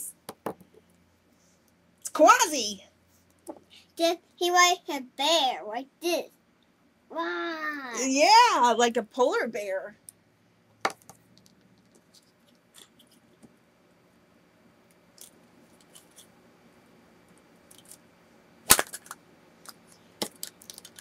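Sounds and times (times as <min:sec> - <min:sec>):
sharp plastic crack: 0:18.6 - 0:21.0.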